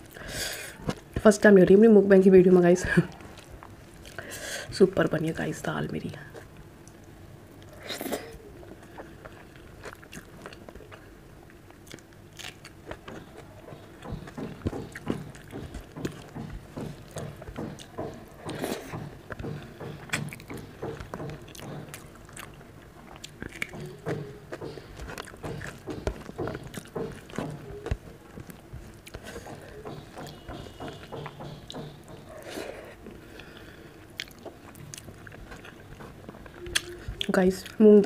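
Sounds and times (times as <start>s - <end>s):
person chewing: 7.6s - 37.8s.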